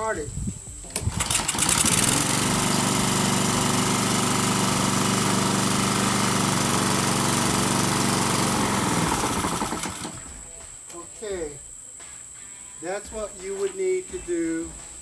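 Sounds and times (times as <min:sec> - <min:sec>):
lawnmower engine running: 0:00.9 - 0:10.3.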